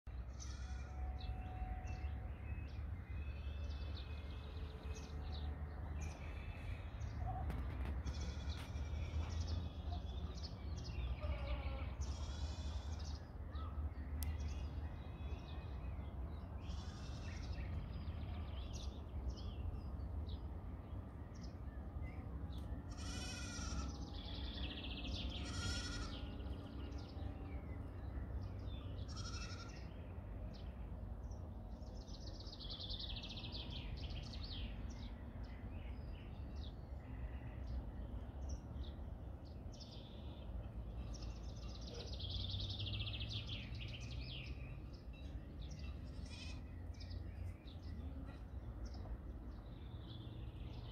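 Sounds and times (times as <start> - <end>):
goats bleating: 22.9 - 23.9, 25.4 - 26.2, 29.1 - 29.8.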